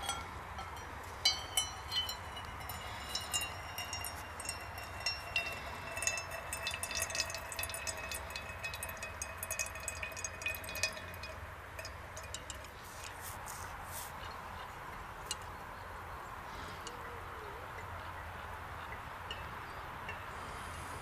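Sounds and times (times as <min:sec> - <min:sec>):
water drips and splashes: 0:00.0 - 0:13.9.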